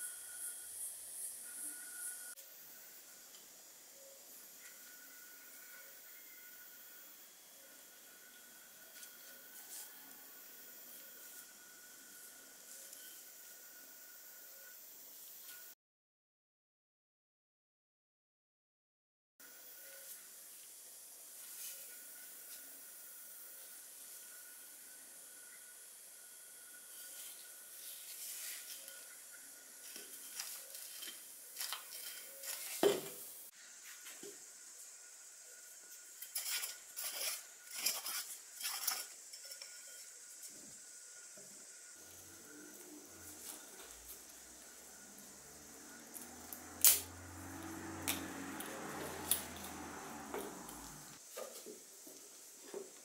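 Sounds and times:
metal oil can clinks and scrapes: 0:29.8 - 0:32.8, 0:36.2 - 0:40.2.

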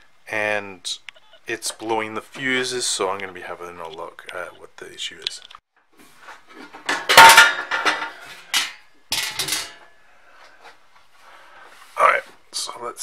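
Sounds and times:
sheet metal cover clanking: 0:06.6 - 0:09.8.

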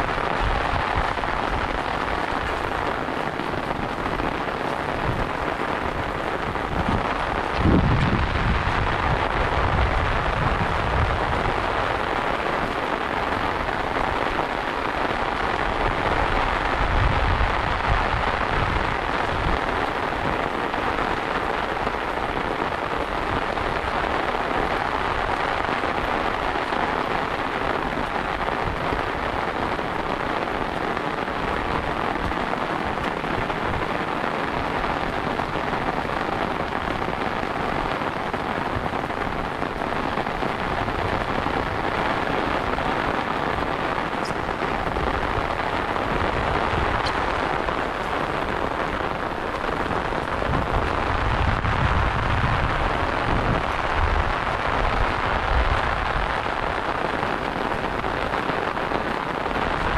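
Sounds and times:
rain pattering on umbrella: 0:00.0 - 0:59.9.

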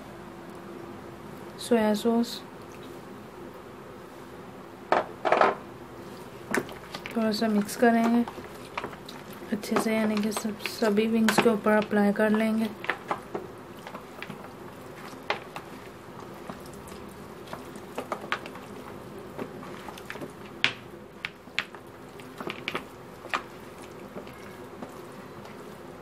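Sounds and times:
hand squishing wet meat: 0:06.0 - 0:26.0.

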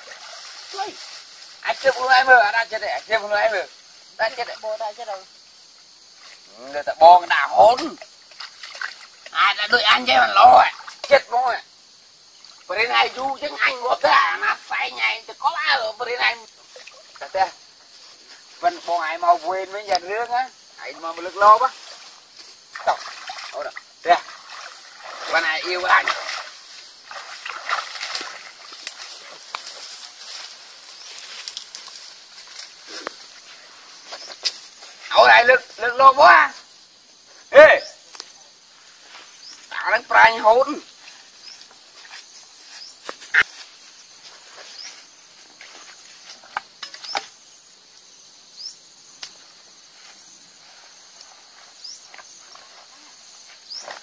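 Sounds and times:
crickets chirping: 0:00.0 - 0:54.0
water sloshing around legs: 0:08.2 - 0:09.3, 0:22.7 - 0:30.2
leaves rustling and snapping: 0:27.4 - 0:33.2.

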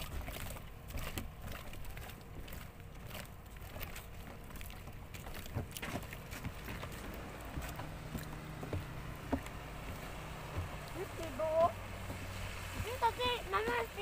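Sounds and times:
distant motorboat engine drone: 0:00.0 - 0:14.0.

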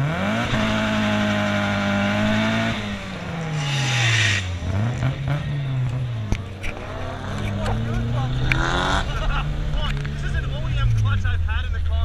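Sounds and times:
car engine revving: 0:00.0 - 0:12.0
tyre screech: 0:03.5 - 0:04.6.

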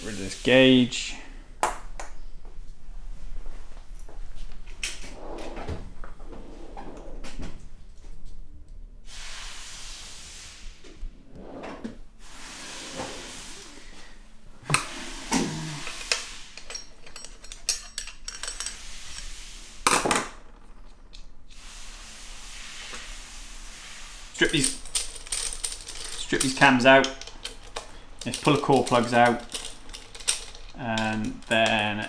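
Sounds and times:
steady hiss: 0:00.0 - 0:01.6, 0:09.0 - 0:17.0, 0:18.6 - 0:20.5, 0:21.4 - 0:32.0
tools clinking on metal: 0:15.6 - 0:19.3, 0:24.4 - 0:32.0.

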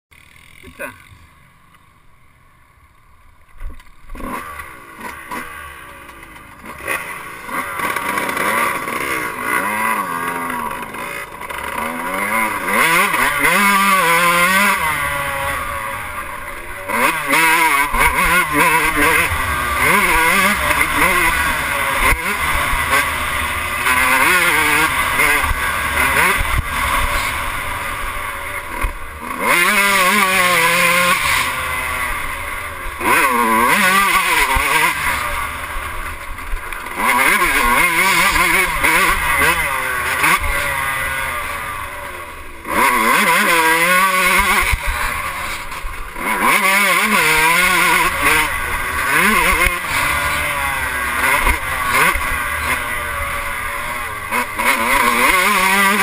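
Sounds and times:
motorcycle engine revving: 0:00.1 - 0:56.0.

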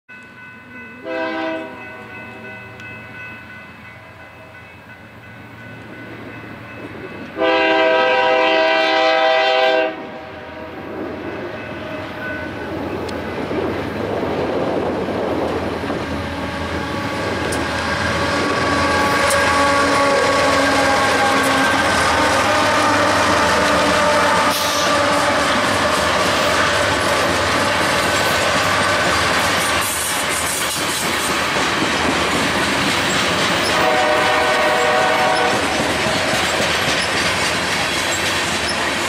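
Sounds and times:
locomotive engines and wheels rumbling: 0:00.1 - 0:39.0
train horn blasts: 0:00.8 - 0:02.9, 0:07.2 - 0:10.9, 0:16.1 - 0:26.8, 0:33.6 - 0:35.9.

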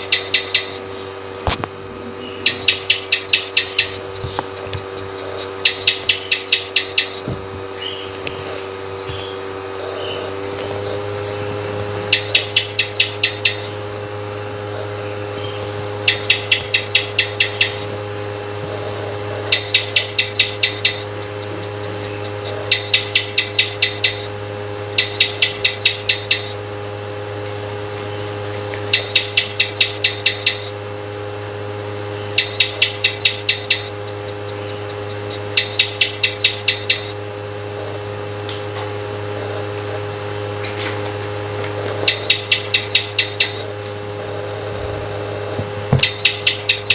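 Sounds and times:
gecko chirping clicks: 0:00.0 - 0:01.6, 0:02.2 - 0:08.4, 0:12.1 - 0:13.8, 0:15.4 - 0:18.0, 0:19.5 - 0:24.3, 0:25.0 - 0:26.6, 0:28.7 - 0:30.8, 0:32.2 - 0:37.2, 0:41.0 - 0:44.0, 0:46.0 - 0:46.9
steady low hum: 0:00.0 - 0:46.9.

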